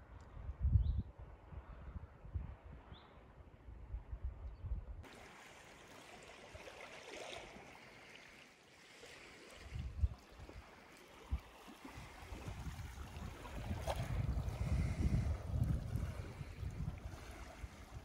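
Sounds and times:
wind rumble on microphone: 0:00.0 - 0:05.1, 0:09.6 - 0:18.0
small waves lapping on stony shore: 0:05.0 - 0:18.0.

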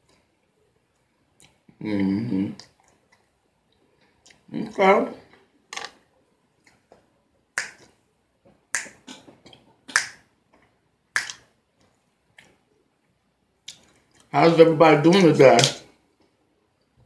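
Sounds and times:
fingers snapping: 0:07.6 - 0:07.9, 0:08.8 - 0:09.2, 0:09.9 - 0:10.2, 0:11.2 - 0:11.4.

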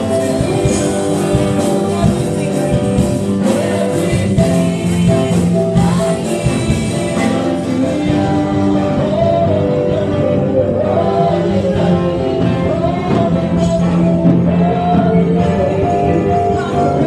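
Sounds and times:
gospel choir singing: 0:00.0 - 0:17.0
keyboard and drums: 0:00.0 - 0:17.0.

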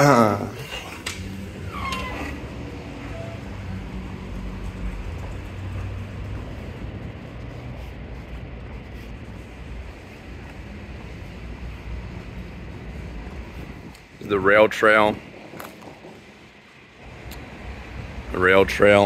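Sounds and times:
brief falling squeak: 0:01.7 - 0:02.4.

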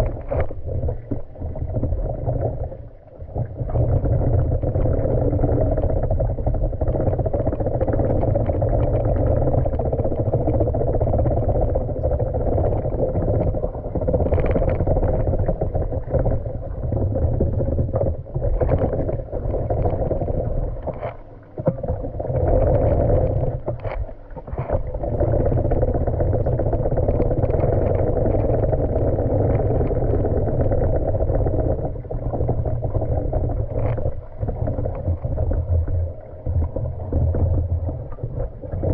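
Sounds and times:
muffled underwater rush of water: 0:00.0 - 0:38.9.

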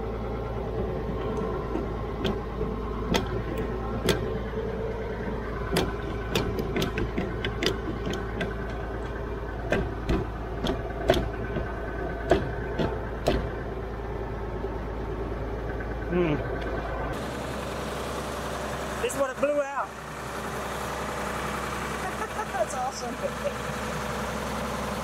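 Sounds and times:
tractor engine idling: 0:00.0 - 0:25.0
sharp clicks and knocks: 0:01.0 - 0:04.4, 0:05.6 - 0:13.7.

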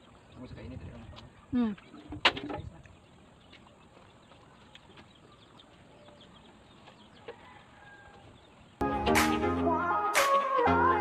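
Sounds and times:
chickens clucking: 0:00.0 - 0:09.4
small birds chirping: 0:00.0 - 0:11.0.

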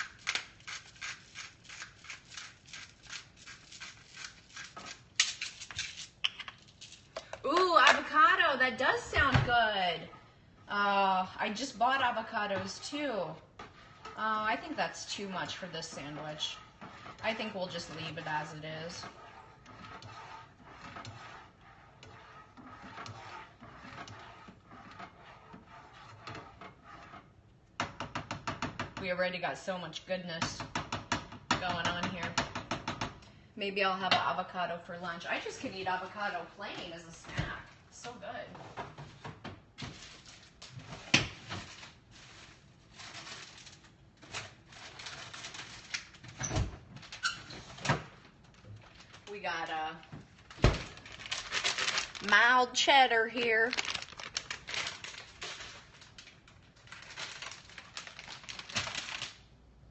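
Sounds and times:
spatula scraping a pan: 0:00.0 - 0:05.1, 0:09.8 - 0:27.4
kitchen knocks and clicks: 0:27.8 - 0:29.1, 0:30.4 - 0:33.2.

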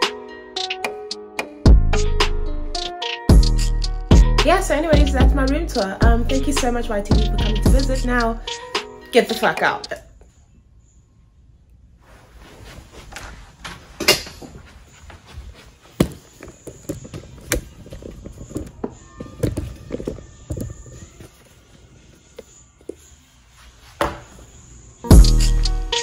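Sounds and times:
footsteps: 0:12.0 - 0:24.5.

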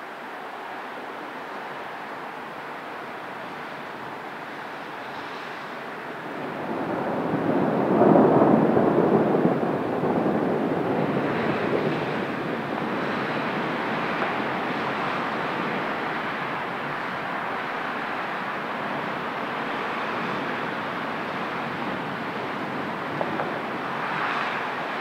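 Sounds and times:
city noise: 0:00.0 - 0:25.0
distant thunder rolling: 0:06.2 - 0:16.8, 0:21.5 - 0:24.6.

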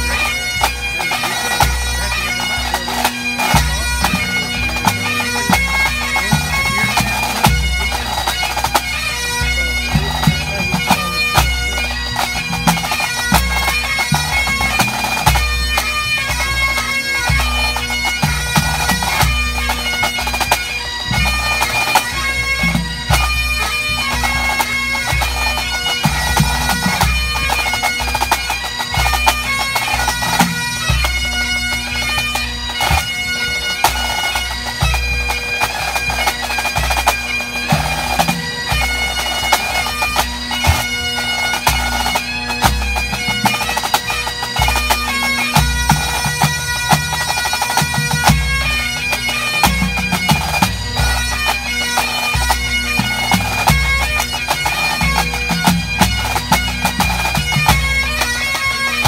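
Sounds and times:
drums beating: 0:00.0 - 0:15.5
bagpipes playing: 0:00.0 - 0:59.0.

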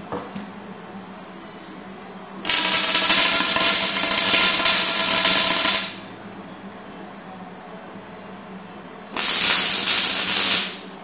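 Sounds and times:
welder arc crackling: 0:02.4 - 0:06.0, 0:09.1 - 0:10.9.

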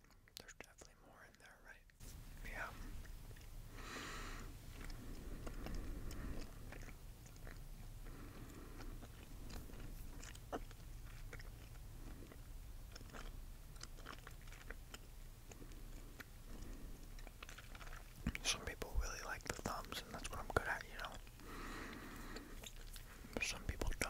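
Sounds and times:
low steady hum: 0:00.0 - 0:24.0
gum chewing mouth clicks: 0:02.6 - 0:03.6, 0:04.6 - 0:24.0.

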